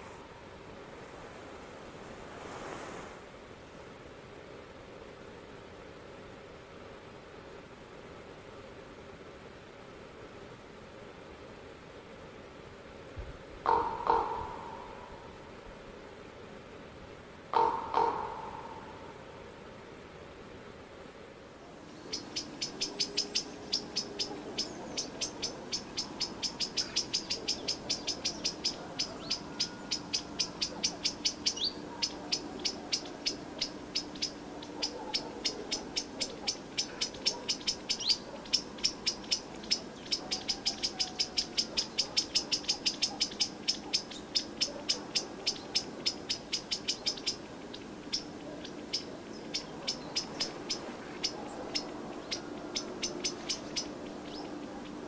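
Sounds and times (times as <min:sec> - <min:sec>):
rhythmic high-pitched chirping: 0:22.1 - 0:55.0.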